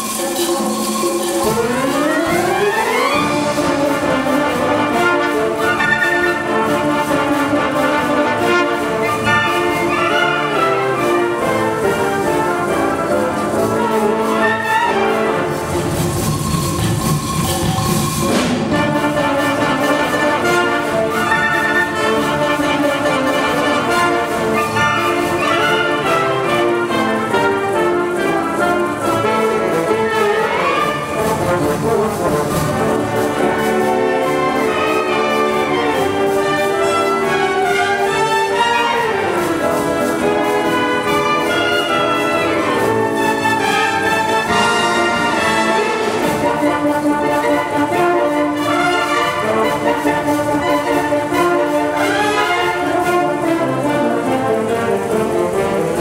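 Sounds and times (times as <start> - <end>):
wind orchestra playing: 0.0 - 56.0.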